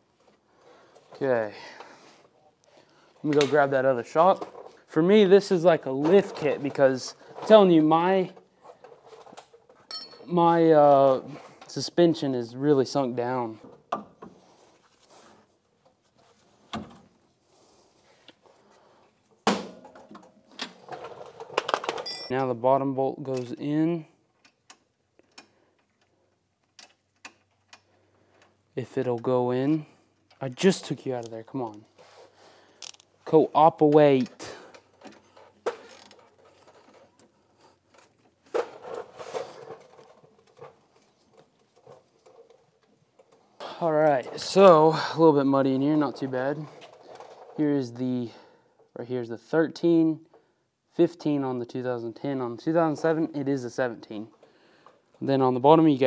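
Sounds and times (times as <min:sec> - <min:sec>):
metal bolt clicks and scrapes: 0:30.2 - 0:33.2.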